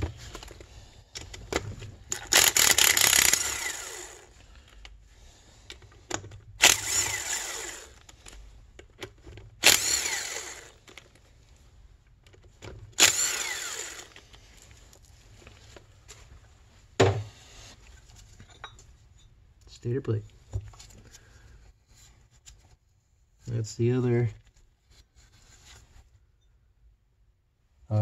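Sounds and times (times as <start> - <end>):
cordless power driver spinning: 0.0 - 4.4, 6.2 - 8.4, 9.5 - 11.1, 12.8 - 14.4.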